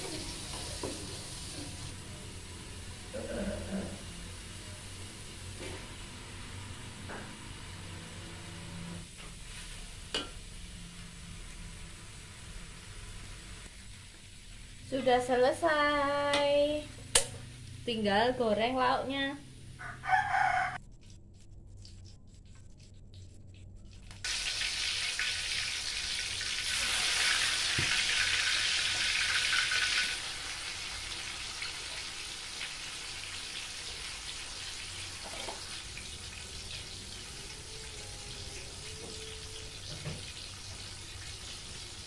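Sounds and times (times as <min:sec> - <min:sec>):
tofu sizzling in hot oil: 0:00.0 - 0:03.1, 0:24.2 - 0:42.0.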